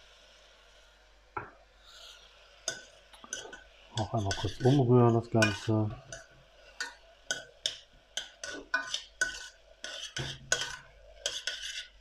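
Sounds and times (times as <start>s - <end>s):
spoon scraping a metal pot: 2.7s - 12.0s.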